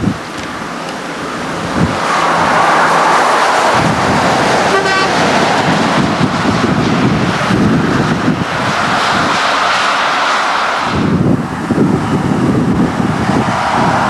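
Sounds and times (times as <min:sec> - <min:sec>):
short horn toot: 0:04.7 - 0:05.3.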